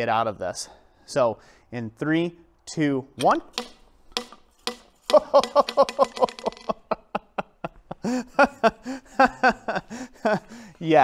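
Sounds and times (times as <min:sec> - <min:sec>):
steel ball bouncing on anvil: 0:03.2 - 0:06.7.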